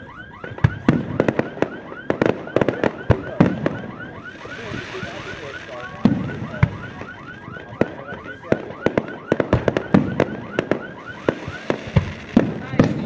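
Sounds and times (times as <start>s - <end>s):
fireworks bursting: 0.4s - 13.0s.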